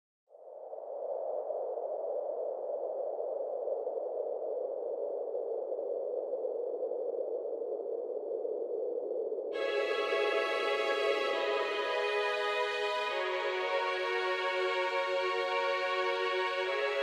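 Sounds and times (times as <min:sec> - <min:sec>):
faint high steady tones: 0:09.6 - 0:17.0.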